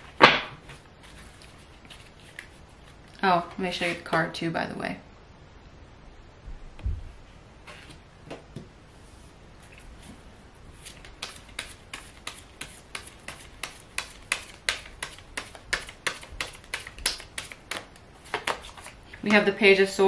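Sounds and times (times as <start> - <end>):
cards being shuffled: 0.1 - 3.2, 10.8 - 19.3.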